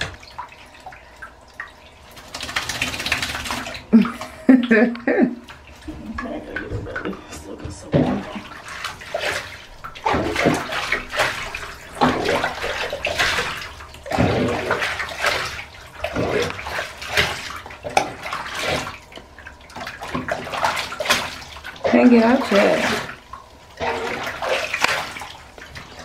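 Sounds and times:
water splashing in a bathtub: 0:00.0 - 0:26.0.

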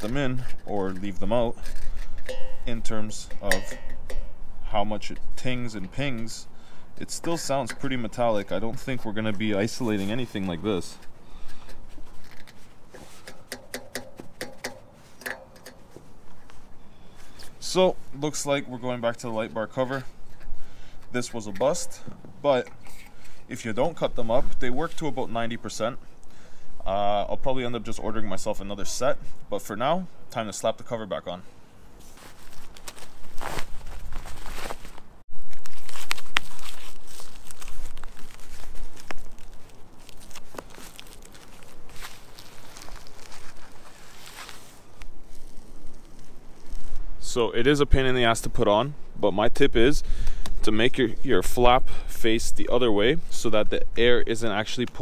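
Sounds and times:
fingers flicking metal fins: 0:12.9 - 0:16.0
heavy fabric rustling and crinkling: 0:32.0 - 0:47.4.

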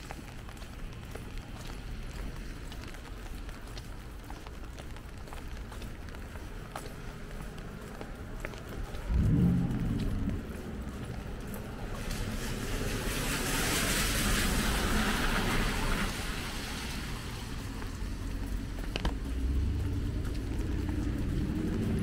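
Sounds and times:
steady low rumble: 0:07.1 - 0:13.0
tyres hissing on wet road: 0:10.3 - 0:22.0.

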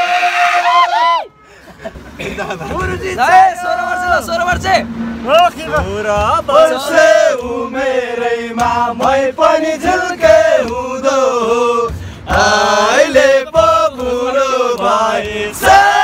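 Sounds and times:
men singing in unison: 0:05.7 - 0:16.0.

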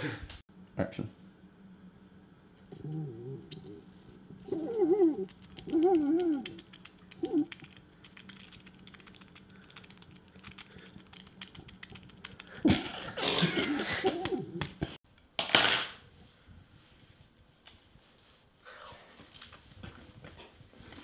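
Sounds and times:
breathy noise: 0:02.6 - 0:14.4
fingers clicking on peel: 0:03.5 - 0:14.8.

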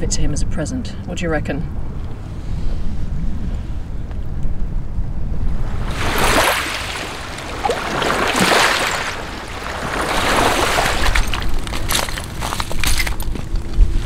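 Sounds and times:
small waves on stony shore: 0:05.6 - 0:13.3.

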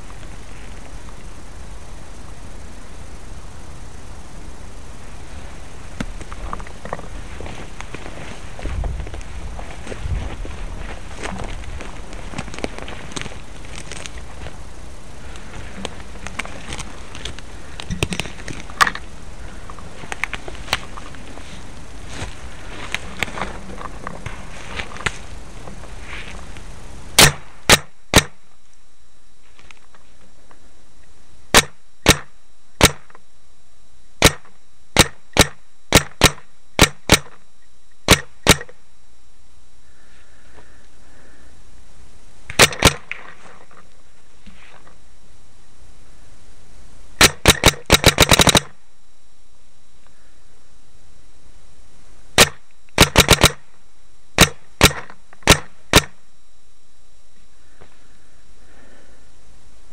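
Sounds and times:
paintball marker shots: 0:27.2 - 0:28.4, 0:31.5 - 0:33.2, 0:34.2 - 0:37.4, 0:38.1 - 0:38.8, 0:42.5 - 0:43.3, 0:47.2 - 0:48.7, 0:52.4 - 0:53.6, 0:54.4 - 0:56.2.

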